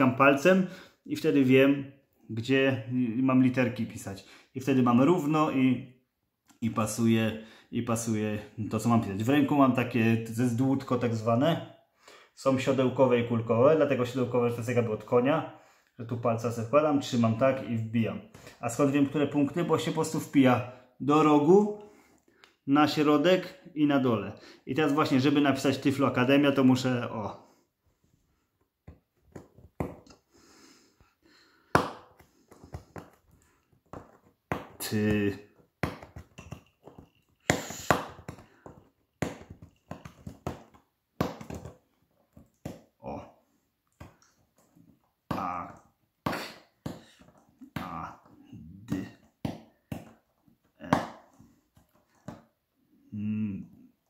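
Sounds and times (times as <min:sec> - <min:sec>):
stylus tapping through paper: 0:31.6 - 0:43.0.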